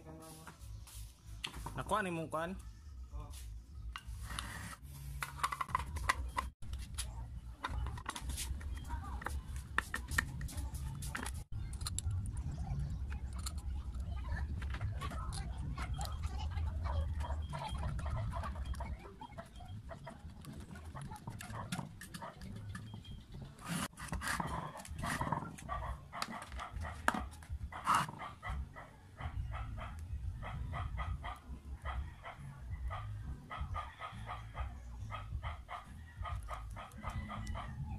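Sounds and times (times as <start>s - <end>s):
steady low rumble: 10.6s - 19.0s
dog barking: 21.0s - 22.4s, 24.4s - 37.9s.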